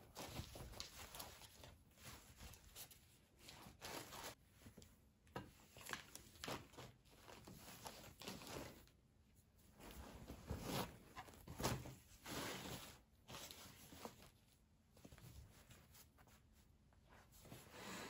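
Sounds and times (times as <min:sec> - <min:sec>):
cloth rustling over wooden table: 0:09.8 - 0:14.4.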